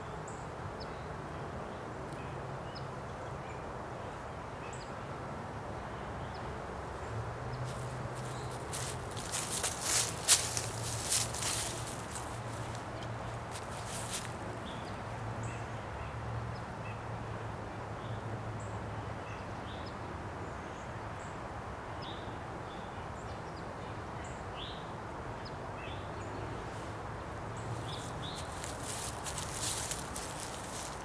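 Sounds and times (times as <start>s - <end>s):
small birds chirping: 7.5s - 15.0s, 27.5s - 31.0s
footsteps on dry leaves: 7.7s - 14.5s, 27.7s - 31.0s.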